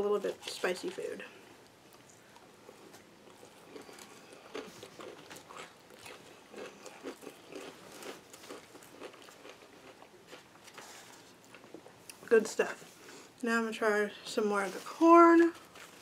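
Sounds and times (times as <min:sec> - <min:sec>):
chewing crisp lettuce: 0:01.6 - 0:12.2.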